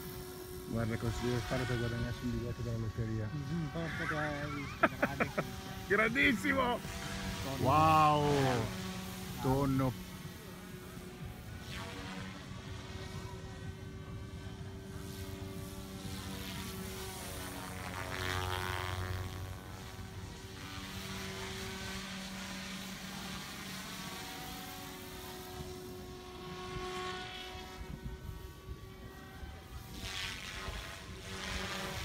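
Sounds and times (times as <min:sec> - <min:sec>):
model helicopter drone and whine: 0:00.0 - 0:32.0.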